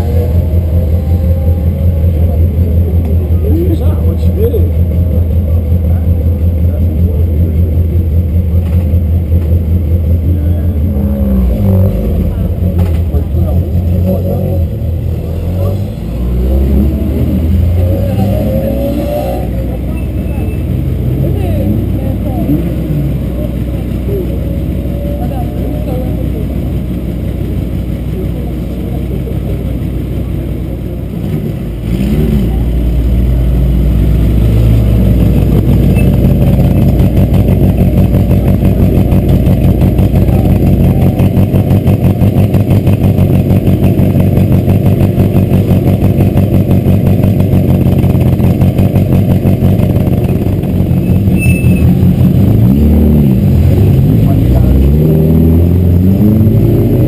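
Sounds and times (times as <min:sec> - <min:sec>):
engine revving: 0:00.0 - 0:27.3, 0:31.0 - 0:57.0
car engines idling: 0:00.0 - 0:57.0.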